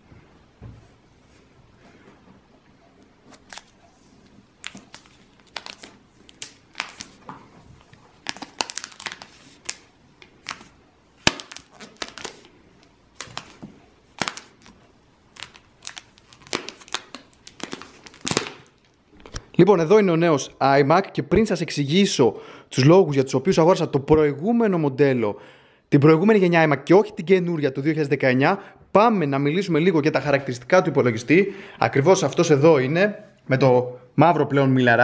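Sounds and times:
plastic film crinkling: 0:03.3 - 0:19.5.

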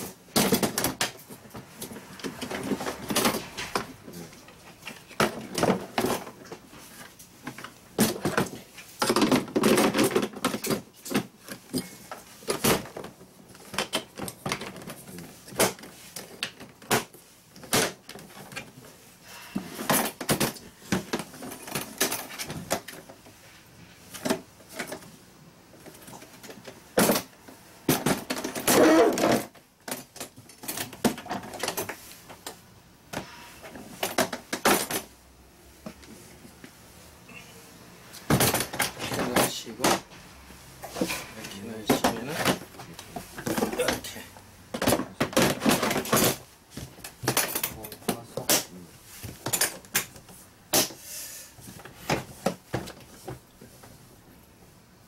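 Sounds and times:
plastic toolbox parts clattering: 0:00.0 - 0:04.1, 0:04.7 - 0:18.8, 0:19.4 - 0:23.2, 0:24.0 - 0:25.1, 0:25.8 - 0:32.6, 0:33.2 - 0:35.1, 0:38.3 - 0:40.1, 0:40.8 - 0:50.2.

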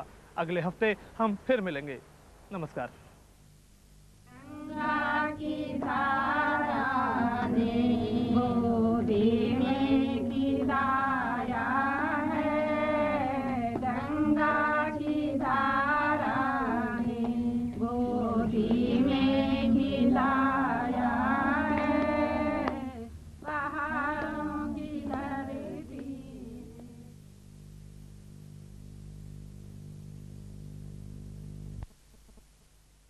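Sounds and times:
chant sung to music: 0:04.4 - 0:27.1.

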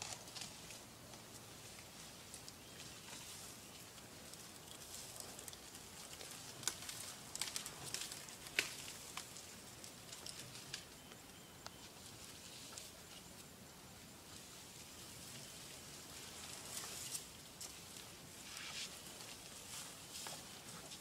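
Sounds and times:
dry twigs crackling and snapping: 0:00.0 - 0:11.8.

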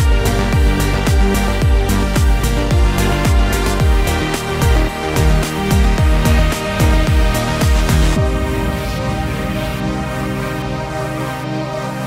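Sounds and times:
deep kick drum beat: 0:00.0 - 0:08.9
held synth chords: 0:00.0 - 0:12.0.

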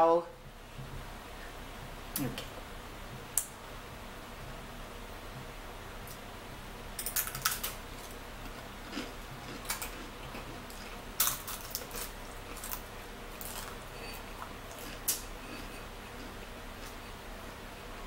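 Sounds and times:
crackers being crunched: 0:07.0 - 0:17.0.

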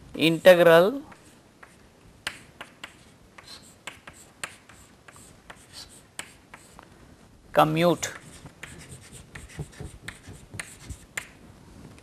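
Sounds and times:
chalk tapping and scratching on blackboard: 0:01.1 - 0:06.8, 0:08.0 - 0:11.4.

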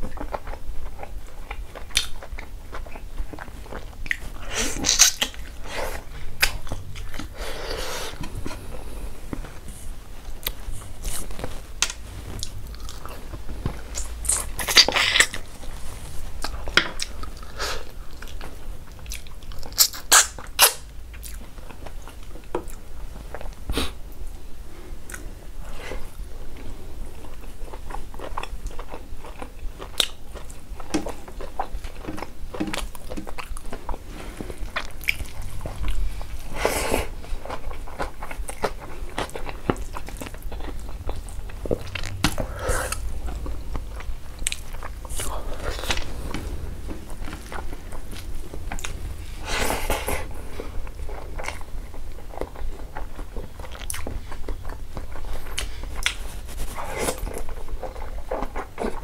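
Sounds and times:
man chewing with wet mouth clicks: 0:00.0 - 0:07.4, 0:16.4 - 0:23.6, 0:25.0 - 0:25.3, 0:26.5 - 0:34.0, 0:34.6 - 0:56.3.

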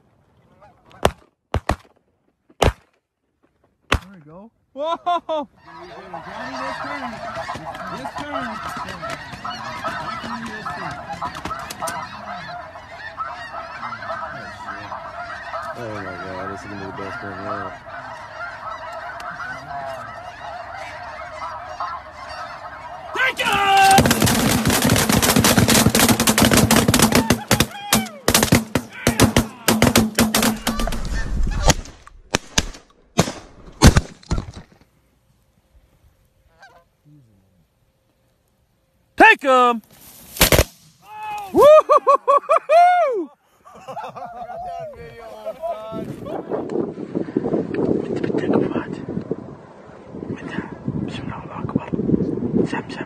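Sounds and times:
flock of geese honking: 0:00.4 - 0:01.2, 0:05.5 - 0:31.8, 0:35.2 - 0:38.4
shotguns firing: 0:23.9 - 0:34.5, 0:40.4 - 0:40.9.

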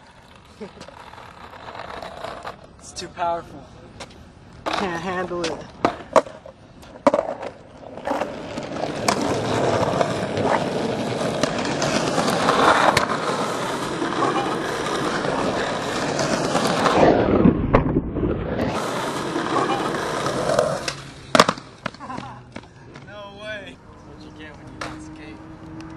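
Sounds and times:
skateboard wheels rolling on concrete: 0:00.0 - 0:25.9
skateboard clack: 0:04.0 - 0:18.0, 0:18.6 - 0:23.1.

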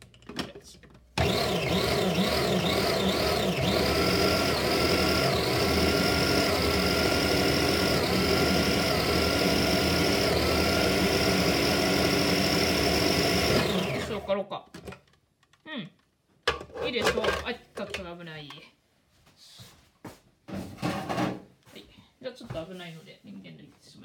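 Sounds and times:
food processor motor whining: 0:01.2 - 0:14.3.

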